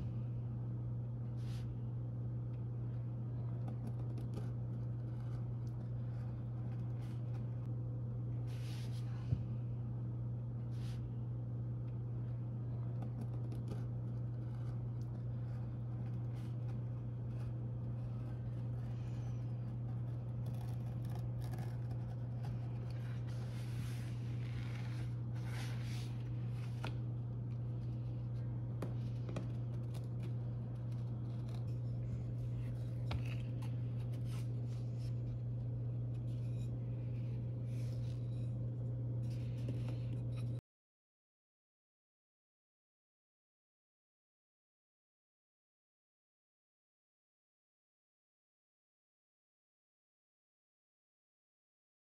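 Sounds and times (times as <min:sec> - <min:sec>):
steady low hum: 0:00.0 - 0:40.6.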